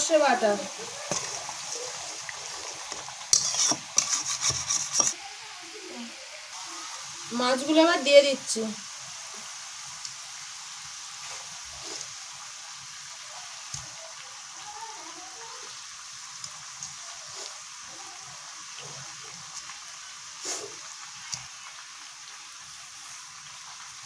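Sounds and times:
gravy sizzling and bubbling: 0.0s - 24.0s
fish plopping into pan: 0.8s - 5.2s.

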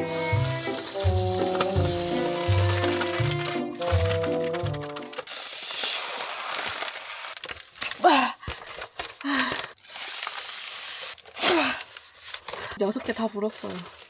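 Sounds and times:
breathy blowing into balloon: 0.0s - 4.4s
foil crinkling: 0.0s - 14.0s.

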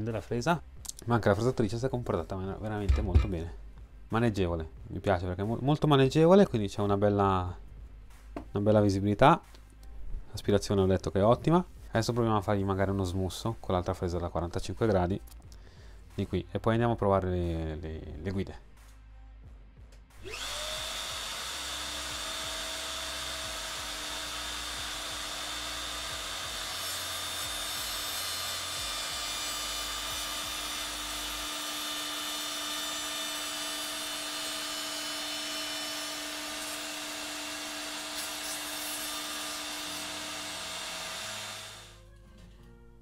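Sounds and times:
router bit cutting wood: 20.2s - 42.0s
router motor whine: 20.2s - 42.0s.

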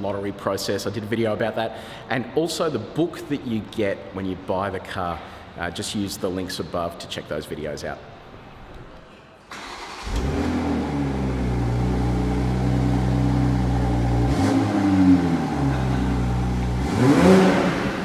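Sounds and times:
car engine running: 10.1s - 18.0s.

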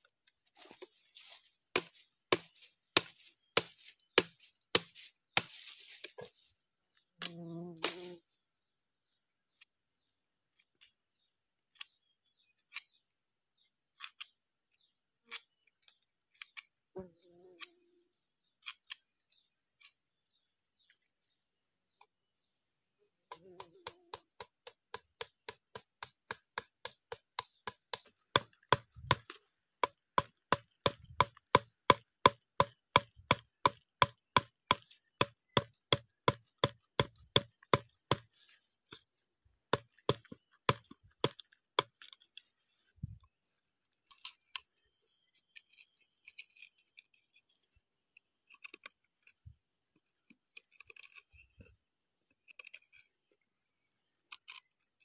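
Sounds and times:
high insect drone: 0.0s - 12.5s, 14.8s - 43.9s
machete chopping bamboo: 1.8s - 5.6s, 23.3s - 38.3s, 39.8s - 41.9s.

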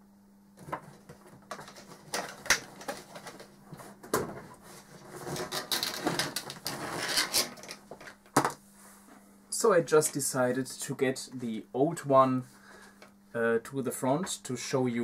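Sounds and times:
faint steady hum: 0.0s - 15.0s
objects being moved and handled: 0.6s - 9.3s.

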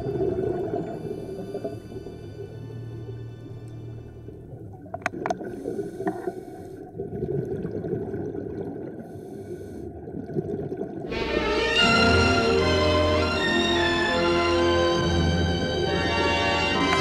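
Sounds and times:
underwater rumble of water: 0.0s - 11.1s.

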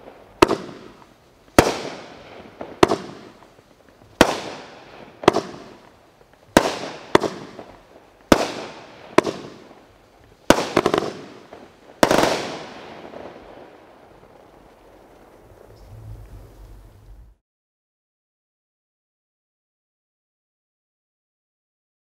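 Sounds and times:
firework shells bursting: 0.0s - 13.4s.

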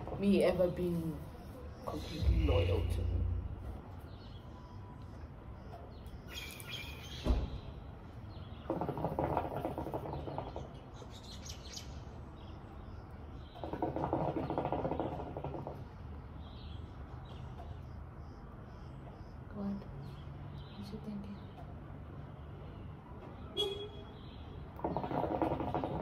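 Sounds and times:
birds chirping: 0.0s - 26.0s
hookah water bubbling: 8.5s - 10.9s, 13.4s - 16.0s, 24.8s - 26.0s.

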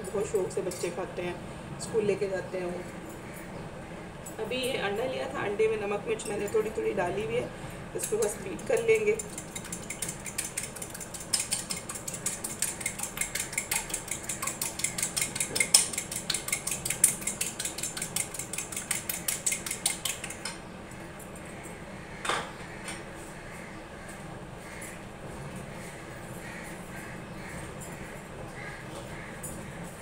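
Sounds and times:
fork beating egg on plate: 8.0s - 20.6s.

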